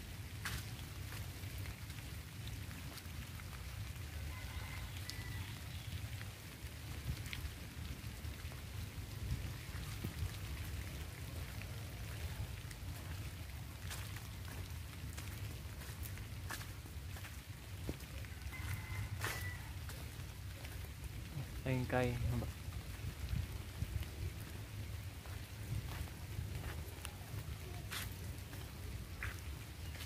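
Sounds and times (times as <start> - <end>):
light rain on leaves: 0.0 - 30.0.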